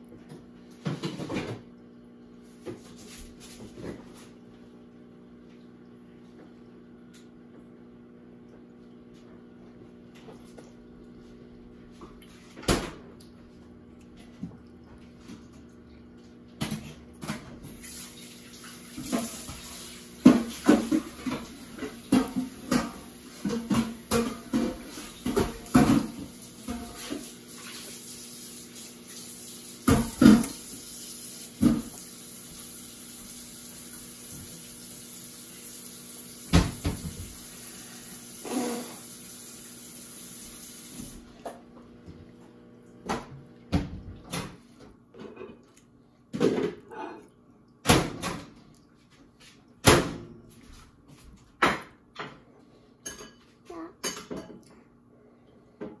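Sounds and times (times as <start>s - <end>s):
water running from tap: 17.6s - 41.3s
dishes and utensils clattering: 53.0s - 54.7s.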